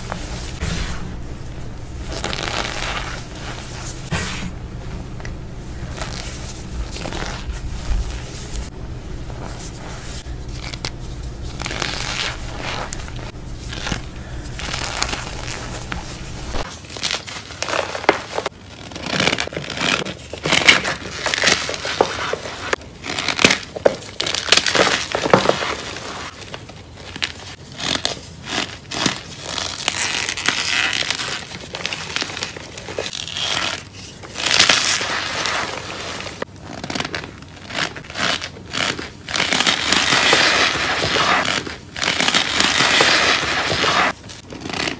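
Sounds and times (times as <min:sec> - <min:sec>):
steady low hum: 0:00.0 - 0:17.2
packed powder crunching: 0:01.9 - 0:04.4, 0:05.7 - 0:44.9.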